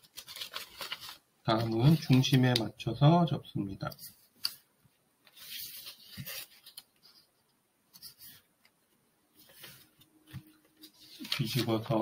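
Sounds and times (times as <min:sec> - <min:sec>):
paper rustling while folded: 0:00.0 - 0:02.6, 0:05.3 - 0:07.3, 0:09.4 - 0:12.0.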